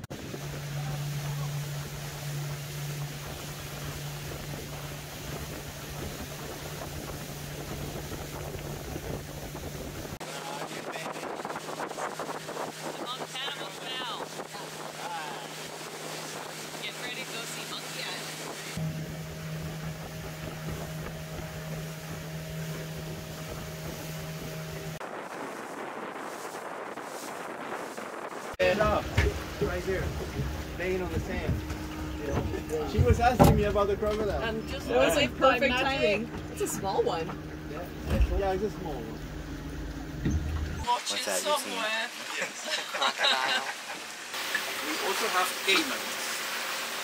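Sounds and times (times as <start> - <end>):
boat motor droning: 0.0 - 42.0, 44.2 - 47.0
wind and water rushing: 0.0 - 47.0
water hiss: 40.8 - 47.0.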